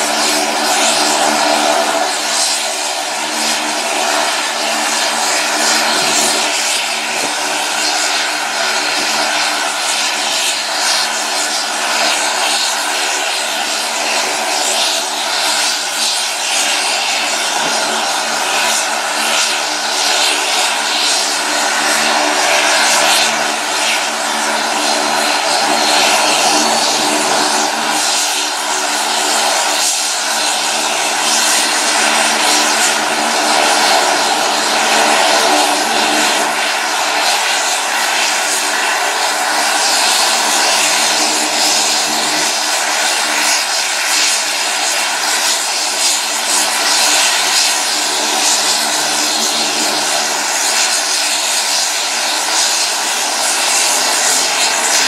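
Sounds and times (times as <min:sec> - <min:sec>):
turboprop engines droning: 0:00.0 - 0:55.0.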